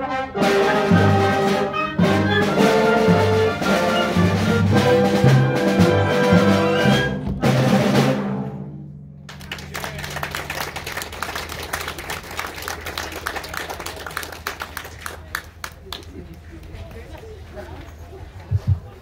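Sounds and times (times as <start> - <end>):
audience applause: 9.3 - 16.4.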